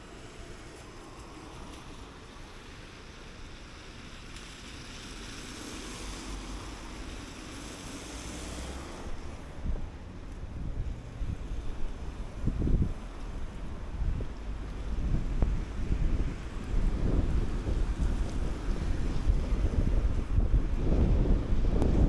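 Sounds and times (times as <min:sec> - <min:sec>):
tyre hiss on wet road: 0:00.0 - 0:21.9
wind buffeting microphone: 0:09.1 - 0:22.0.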